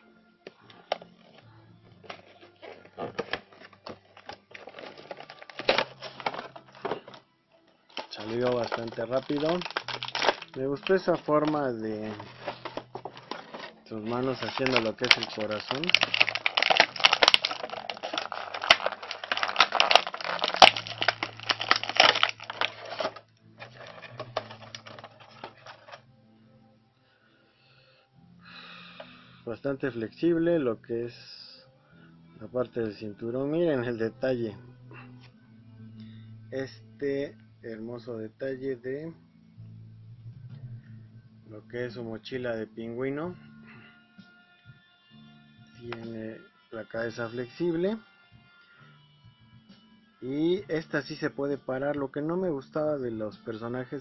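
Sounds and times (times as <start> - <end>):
packaging clicks and plastic rustles: 0.7 - 7.3, 7.9 - 26.0.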